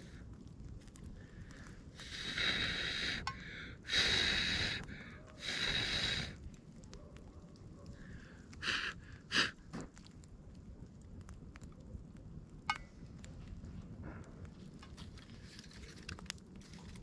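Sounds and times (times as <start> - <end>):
person blowing on embers: 0.0 - 6.8, 7.9 - 10.2.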